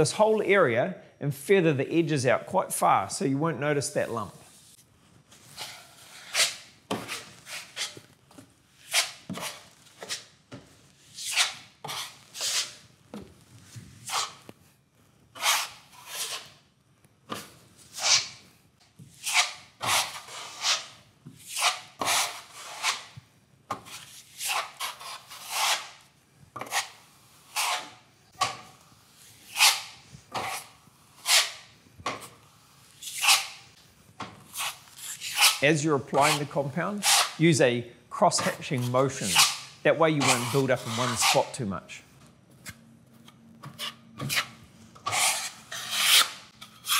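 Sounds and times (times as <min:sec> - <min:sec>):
trowel scraping plaster: 0:04.5 - 0:10.4, 0:11.1 - 0:12.9, 0:13.9 - 0:14.5, 0:15.4 - 0:16.6, 0:17.3 - 0:18.4, 0:19.0 - 0:37.4, 0:38.3 - 0:41.6, 0:43.6 - 0:46.9.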